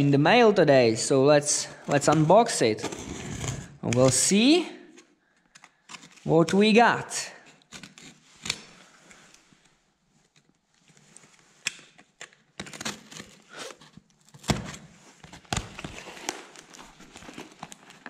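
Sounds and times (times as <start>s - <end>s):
knife slicing packing tape: 12.6s - 14.8s.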